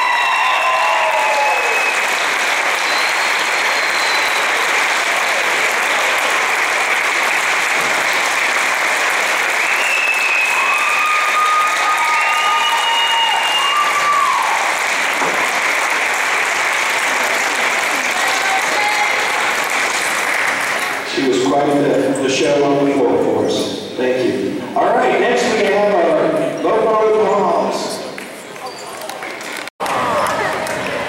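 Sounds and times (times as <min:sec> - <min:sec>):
crowd applauding: 0:00.0 - 0:21.3, 0:28.2 - 0:31.0.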